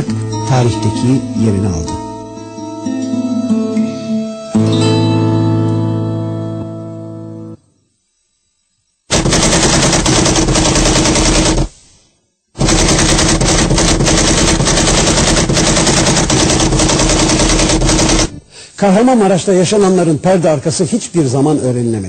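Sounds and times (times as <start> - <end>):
background music: 0.0 - 7.8
rapid automatic gunfire: 9.1 - 11.8, 12.6 - 18.3.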